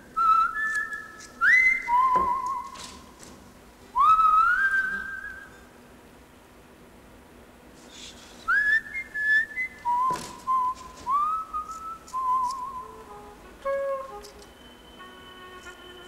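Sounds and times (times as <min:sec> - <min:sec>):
person whistling a melody: 0:00.1 - 0:02.9, 0:04.0 - 0:05.6, 0:08.5 - 0:16.0.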